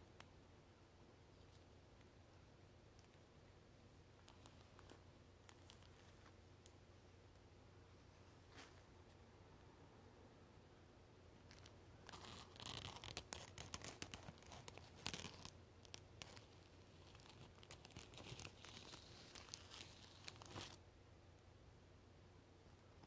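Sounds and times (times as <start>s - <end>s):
scratchy rustles: 11.5s - 20.8s.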